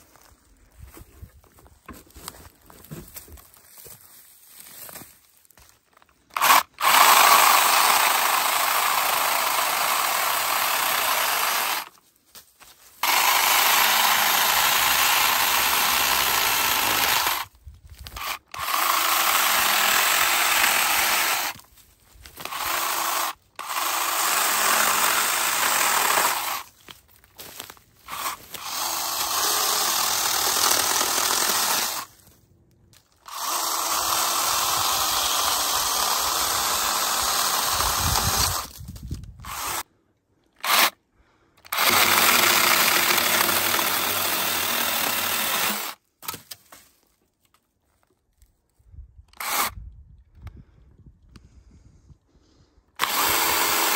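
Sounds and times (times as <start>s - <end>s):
mini chainsaw cutting wood: 6.3s - 12.0s, 13.0s - 26.8s, 27.4s - 32.3s, 33.2s - 39.9s, 40.6s - 41.0s, 41.6s - 46.5s, 49.3s - 49.8s, 52.9s - 53.9s.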